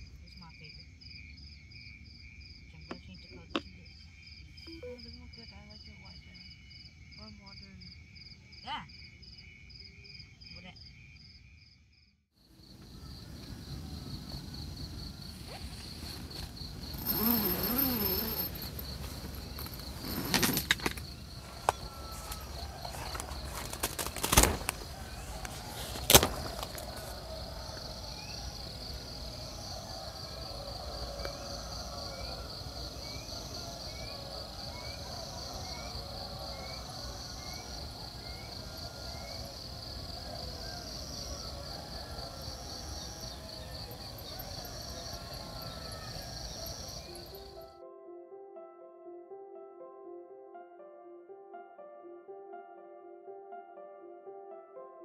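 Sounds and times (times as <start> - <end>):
night insects trilling: 0.0 - 47.8.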